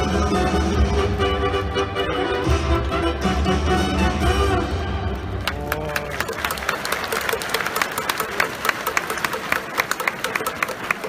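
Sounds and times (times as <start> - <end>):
string music: 0.0 - 6.3
stadium crowd applauding: 5.2 - 11.0.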